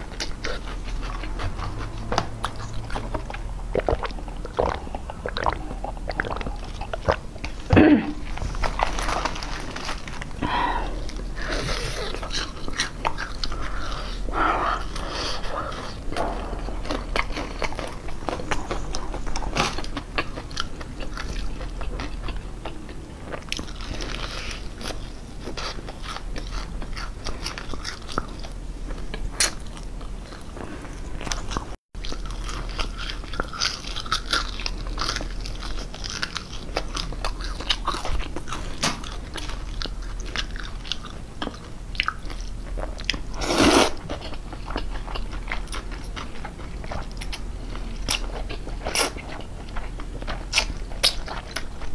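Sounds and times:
crunching fried chicken: 8.4 - 51.9
slurping noodles: 43.4 - 44.0.

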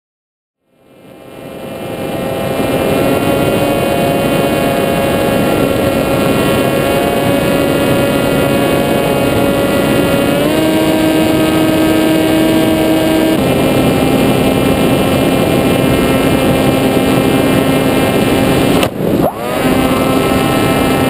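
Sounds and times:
model aircraft motor whine: 0.7 - 21.0.

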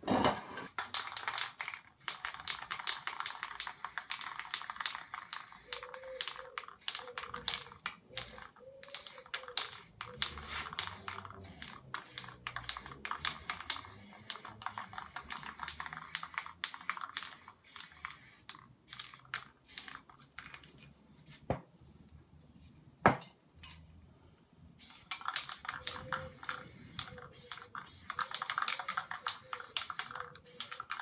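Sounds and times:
aerosol spray can hissing: 2.0 - 20.1, 24.8 - 31.0.

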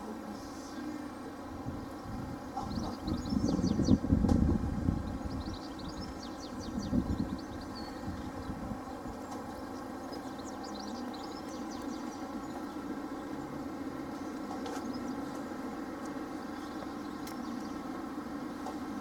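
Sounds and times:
birds chirping: 0.0 - 19.0.

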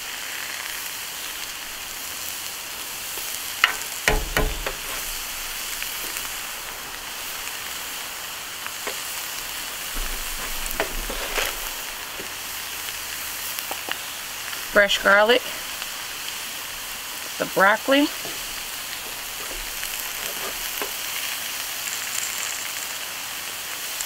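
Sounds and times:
vegetables sizzling on a griddle: 0.0 - 24.0
sharp clicks and knocks: 3.2 - 7.4, 9.8 - 12.4, 18.2 - 21.1.

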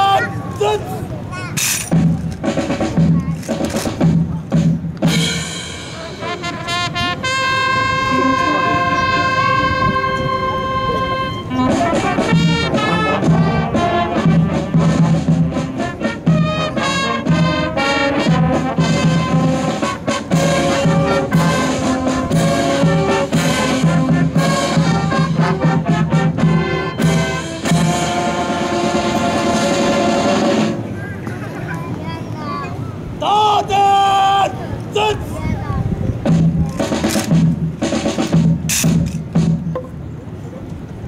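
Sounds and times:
drum hits: 1.6 - 6.2, 36.2 - 40.0
brass band music: 1.6 - 31.0, 36.2 - 39.6.

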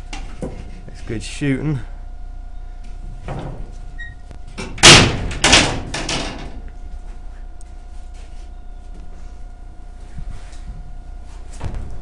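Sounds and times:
metal rattle: 4.5 - 6.6
steel panel banging shut: 4.5 - 6.6.

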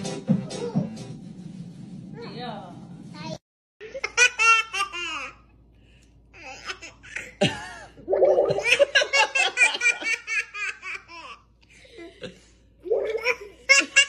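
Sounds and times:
baby laughing: 12.9 - 14.0.

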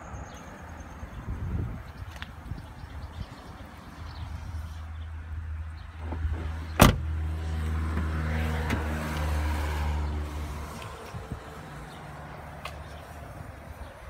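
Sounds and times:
vehicle engine hum: 0.0 - 14.0
car door shutting: 6.0 - 7.1.

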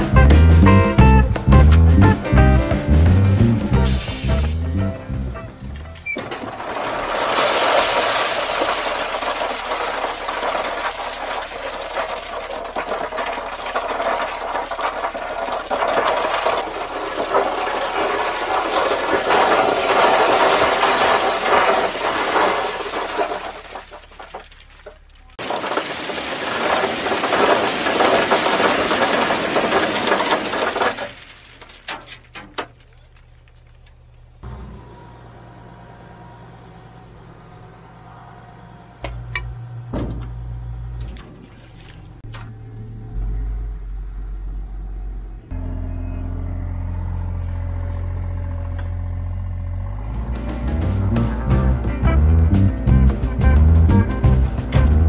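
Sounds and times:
stones pouring from truck bed: 5.8 - 33.4, 41.2 - 42.2, 49.8 - 55.0
diesel engine idling: 32.8 - 39.7, 41.7 - 55.0.

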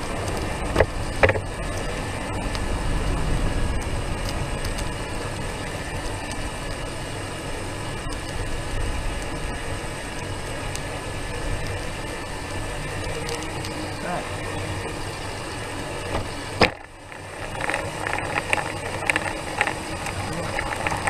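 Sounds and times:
faint steady whine: 0.0 - 21.0
vehicle wheels rolling on concrete: 0.0 - 21.0.

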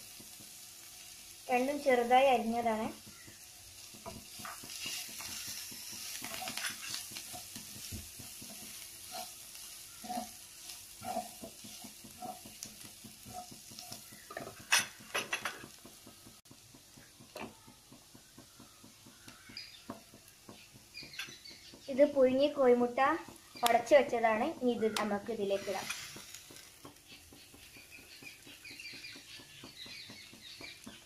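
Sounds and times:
vegetables sizzling in a frying pan: 0.0 - 31.0
spatula scraping a pan: 2.6 - 16.1, 24.6 - 30.9.

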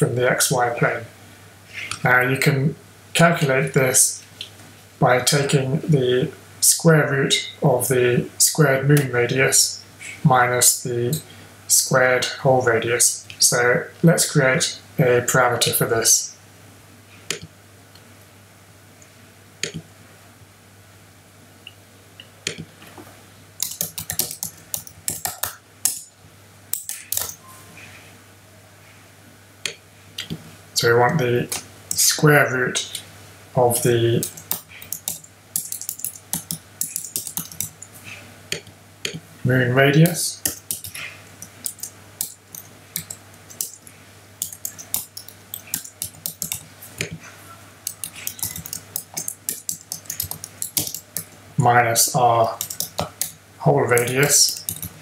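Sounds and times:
computer keyboard typing: 23.6 - 26.1, 26.7 - 27.4, 34.2 - 37.9, 40.4 - 47.2, 47.9 - 51.4, 52.4 - 55.0.

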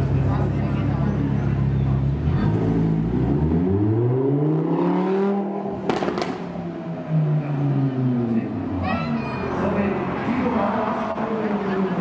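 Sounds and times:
car engine revving: 2.0 - 8.8.

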